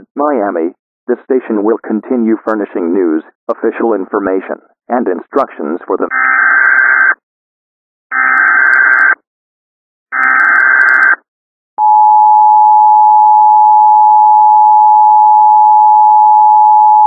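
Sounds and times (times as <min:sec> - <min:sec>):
steady two-tone alert tone: 0:11.8 - 0:17.0.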